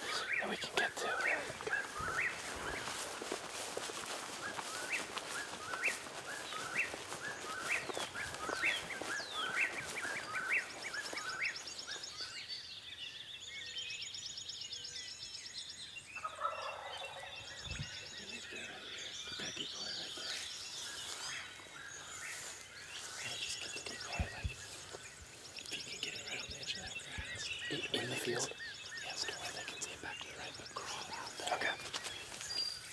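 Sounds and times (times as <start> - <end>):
songbirds calling: 0.0 - 32.9
turkeys gobbling: 16.2 - 17.3.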